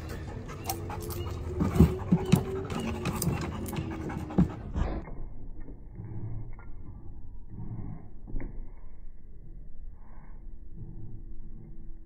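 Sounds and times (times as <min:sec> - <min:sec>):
dog panting: 0:00.0 - 0:05.0.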